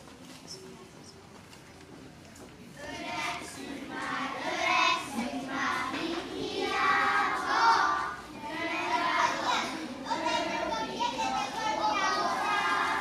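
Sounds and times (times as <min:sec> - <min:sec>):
children singing together: 0:02.8 - 0:13.0.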